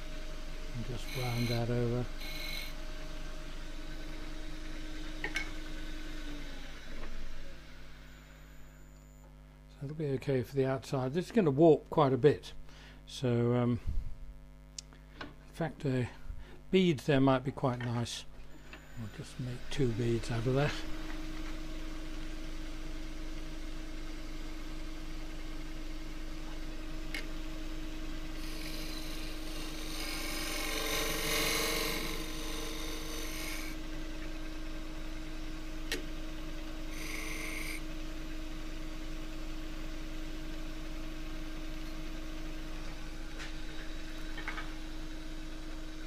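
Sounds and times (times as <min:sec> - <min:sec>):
wood lathe motor hum: 0:00.0 - 0:02.8, 0:28.0 - 0:35.2, 0:36.8 - 0:38.0
turning tool cutting wood: 0:00.8 - 0:02.8, 0:28.4 - 0:33.8, 0:36.9 - 0:37.8.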